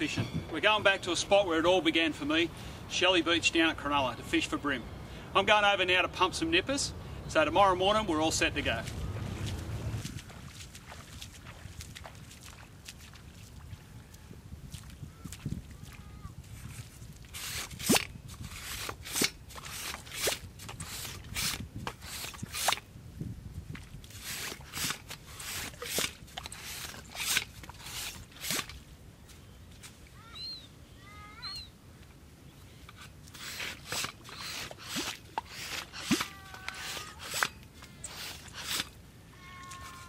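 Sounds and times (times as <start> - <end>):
pump sucking and squelching in sand: 16.5 - 22.8, 24.1 - 28.8, 32.9 - 39.0
birds chirping: 29.2 - 31.8.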